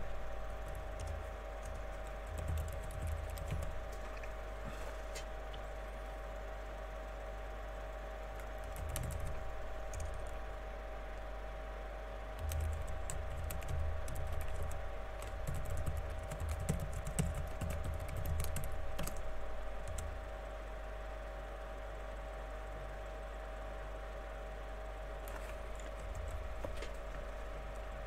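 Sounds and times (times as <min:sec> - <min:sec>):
steady hum: 0:00.0 - 0:28.0
typing on a computer keyboard: 0:00.6 - 0:04.0, 0:08.4 - 0:10.4, 0:12.4 - 0:20.2.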